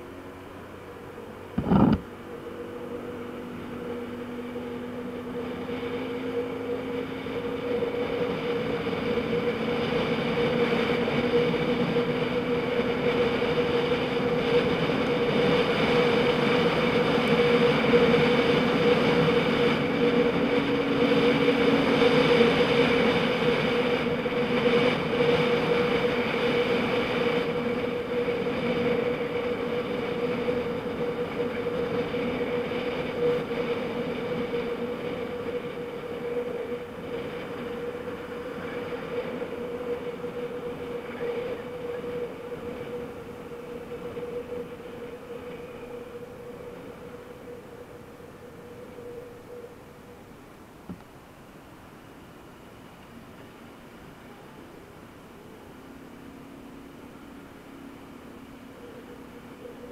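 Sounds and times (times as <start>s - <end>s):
scooter engine drone: 0.0s - 59.9s
wind and road noise: 0.0s - 59.9s
brief thump: 1.6s - 2.1s.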